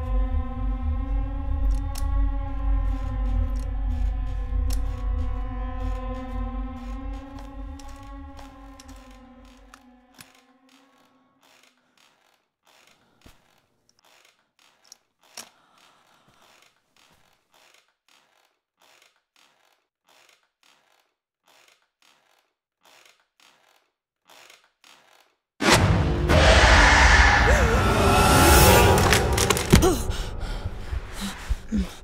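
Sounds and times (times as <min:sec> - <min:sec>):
metal crutches creaking and tapping: 0:06.8 - 0:25.4.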